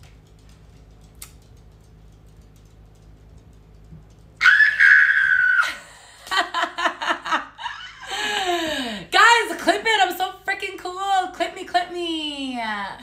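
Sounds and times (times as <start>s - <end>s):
woman screaming: 4.4s - 5.8s.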